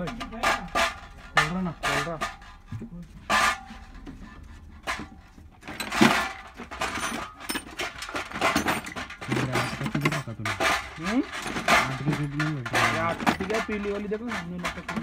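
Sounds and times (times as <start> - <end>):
metal parts clinking on steel tray: 4.9 - 15.0.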